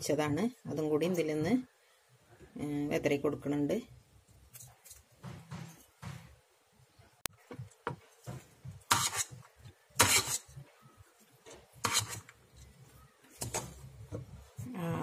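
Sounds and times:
metal spoon scraping metal pot: 8.9s - 9.4s, 10.0s - 10.5s, 11.8s - 12.3s.

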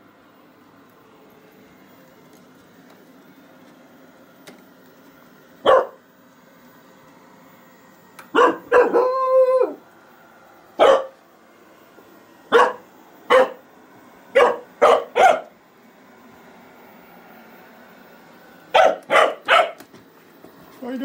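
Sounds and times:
puppy barking: 5.6s - 6.0s, 8.3s - 9.1s, 10.8s - 11.2s, 12.5s - 13.6s, 14.3s - 15.5s, 18.7s - 19.8s
puppy howling: 8.3s - 9.9s, 14.4s - 15.5s.

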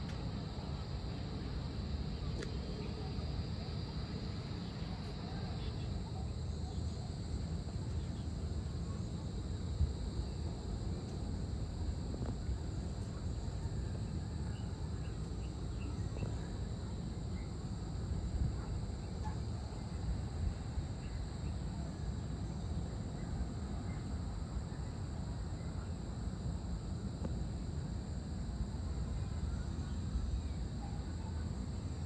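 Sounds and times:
insects trilling: 0.1s - 32.0s.

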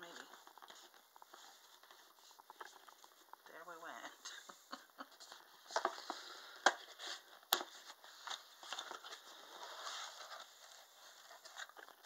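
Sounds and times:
cardboard and paper rustling: 0.0s - 3.8s, 5.0s - 12.0s.

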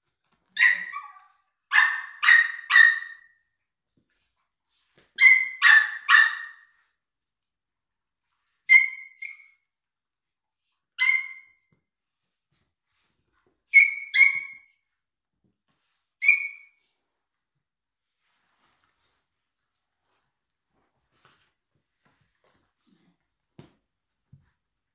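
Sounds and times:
dog barking high-pitched: 0.6s - 3.3s, 5.2s - 6.7s, 11.0s - 11.6s, 13.7s - 14.7s.

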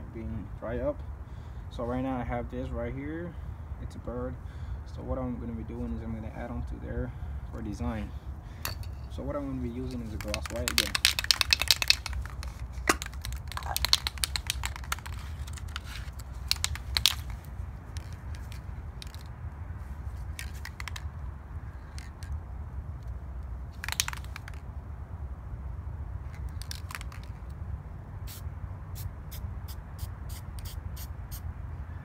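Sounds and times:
spray can and paper rustling: 9.7s - 19.3s, 20.2s - 21.1s, 23.8s - 24.6s, 26.3s - 27.4s, 29.7s - 31.2s.

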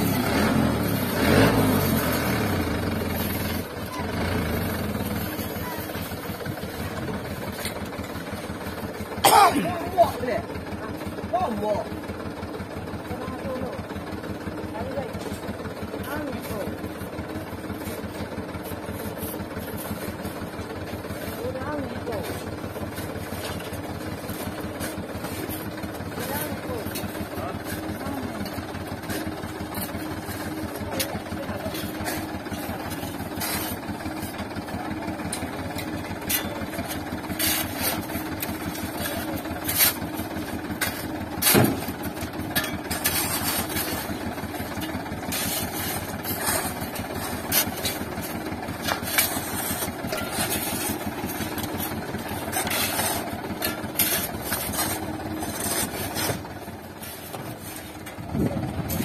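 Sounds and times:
diesel engine idling: 0.0s - 59.0s
shovels scraping gravel: 17.7s - 59.0s.

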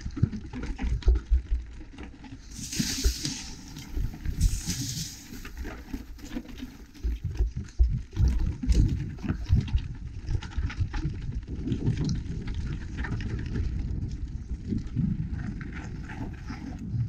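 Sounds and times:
bike tyres rattling over stones: 0.0s - 17.0s.

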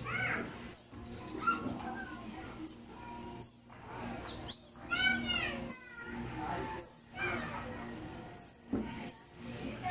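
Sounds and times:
young birds begging calls: 0.0s - 1.7s, 2.6s - 3.7s, 4.4s - 9.5s.

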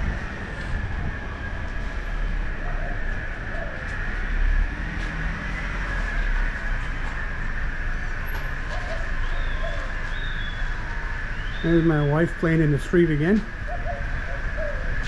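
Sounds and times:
low rumble: 0.0s - 5.4s
high-pitched drone: 0.0s - 15.0s.

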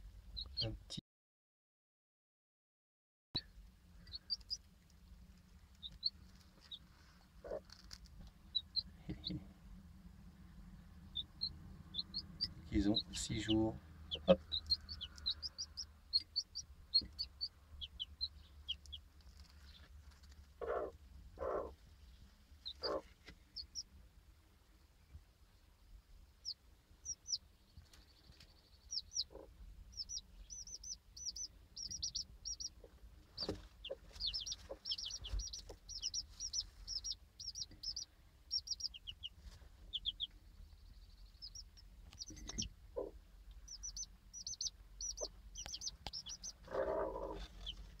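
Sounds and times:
chicks peeping: 0.4s - 0.8s, 3.4s - 9.4s, 10.5s - 23.9s, 26.4s - 48.0s
hen clucking: 5.8s - 7.8s, 11.1s - 19.1s, 20.6s - 21.8s, 22.6s - 23.8s, 26.4s - 27.4s, 28.9s - 40.4s, 41.3s - 48.0s.

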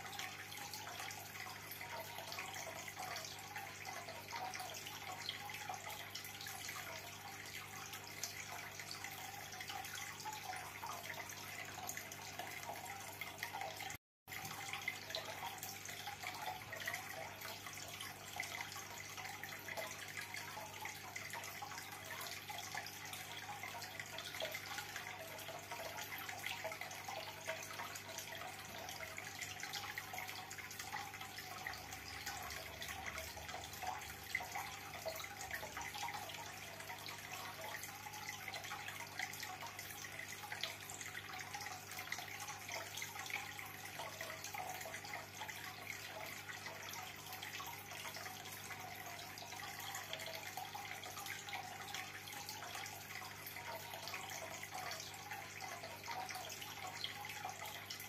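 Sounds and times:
water trickling and bubbling: 0.0s - 58.0s.

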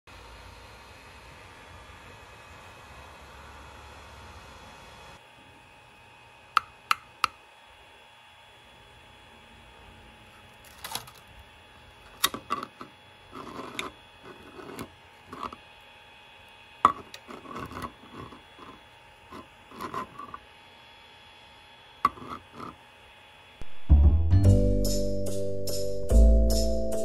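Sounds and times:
plastic parts clicking and tapping: 10.7s - 11.2s.

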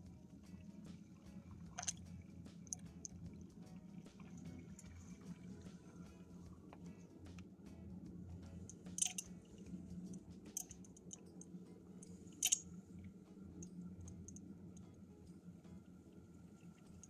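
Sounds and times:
wet clicks and gurgles: 0.5s - 6.1s, 8.7s - 11.5s, 12.3s - 14.5s.

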